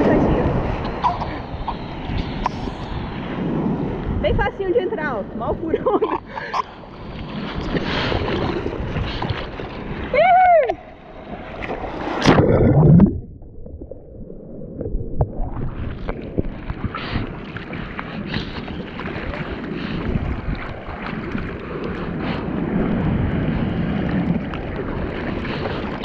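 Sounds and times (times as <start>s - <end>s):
wave rushing: 0.0s - 26.0s
whitewater splashing and rushing: 6.4s - 13.3s, 14.5s - 26.0s.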